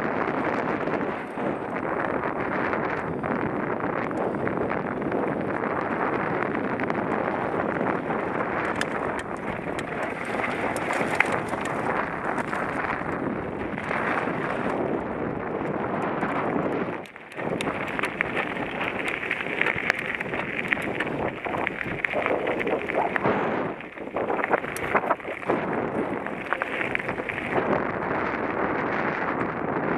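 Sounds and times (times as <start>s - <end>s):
bike tyres crunching gravel: 0.0s - 29.9s
wind rushing over microphone: 0.0s - 29.9s
clicks and rattles: 8.6s - 13.1s, 16.0s - 23.4s.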